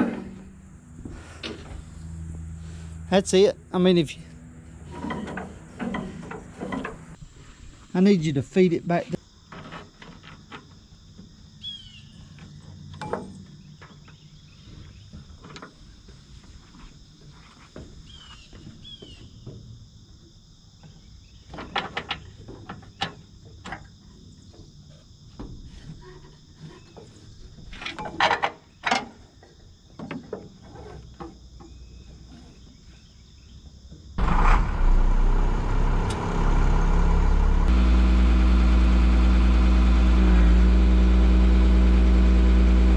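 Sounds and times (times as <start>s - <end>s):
truck engine running: 0.0s - 7.2s, 34.2s - 42.9s.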